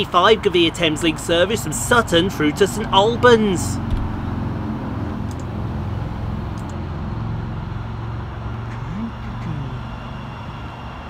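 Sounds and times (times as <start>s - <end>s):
low rumble of motorway traffic: 0.0s - 11.0s
electric train approaching: 3.6s - 11.0s
rising and falling tone: 3.8s - 5.4s.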